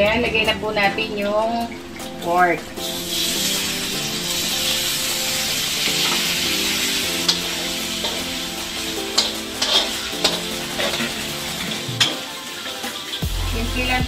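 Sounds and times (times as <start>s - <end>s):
metal spatula scraping wok: 2.8s - 13.2s
meat sizzling in hot oil: 2.8s - 14.0s.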